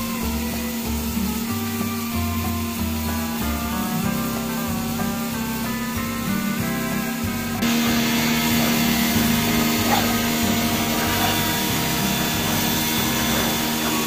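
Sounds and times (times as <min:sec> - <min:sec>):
background music: 0:00.0 - 0:14.0
electric motor hum: 0:00.0 - 0:14.0.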